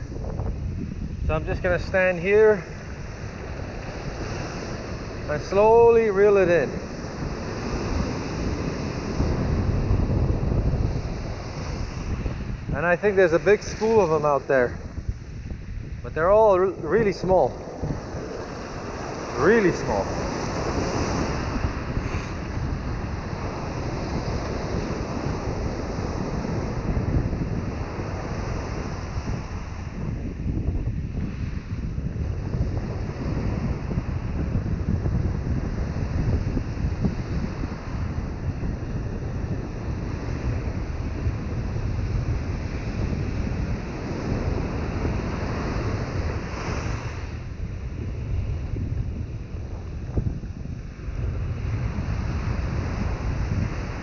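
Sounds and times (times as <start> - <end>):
ocean surf breaking: 0.0 - 30.0, 39.7 - 47.6
wind buffeting microphone: 0.0 - 54.0.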